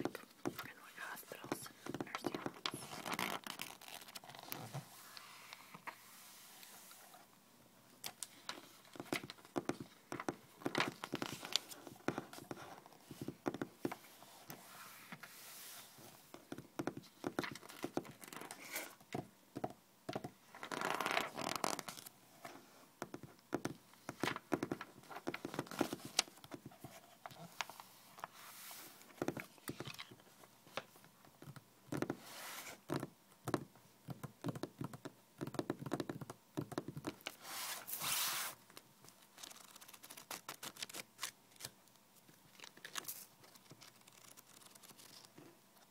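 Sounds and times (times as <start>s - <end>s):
fingernails tapping on paper: 32.9s - 37.2s.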